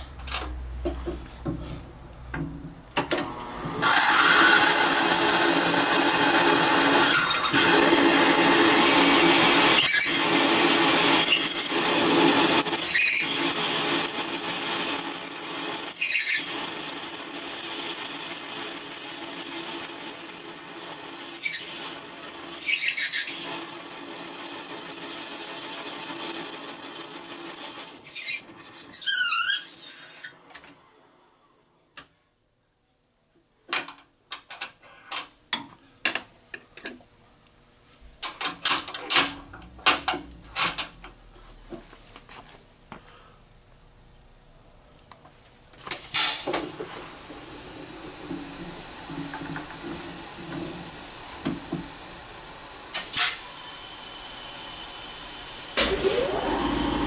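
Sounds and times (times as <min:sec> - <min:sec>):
drill cutting metal: 0:03.8 - 0:29.0, 0:52.9 - 0:57.0.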